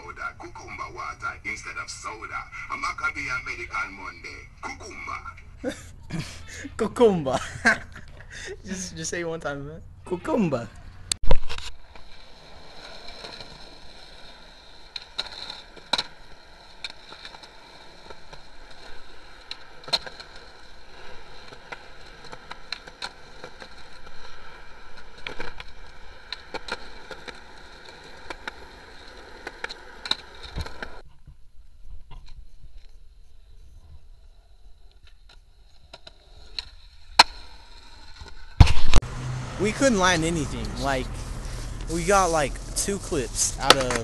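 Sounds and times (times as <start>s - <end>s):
skateboard wheels rolling on concrete: 0.0s - 6.4s, 10.8s - 44.0s
skateboard clacks: 12.7s - 31.0s, 34.9s - 39.0s, 43.6s - 44.0s.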